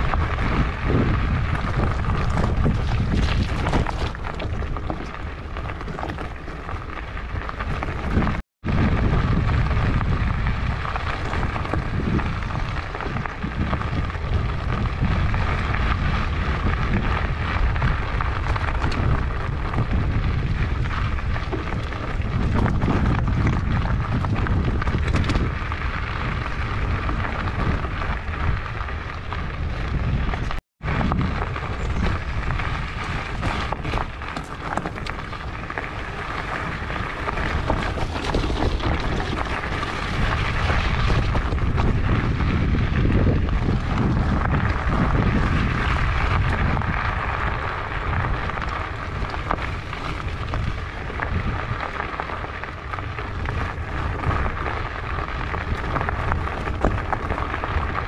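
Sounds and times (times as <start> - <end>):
bike rattling: 0.0 - 58.0
tyres crunching over stones: 0.0 - 58.0
wind rumble on microphone: 0.0 - 58.0.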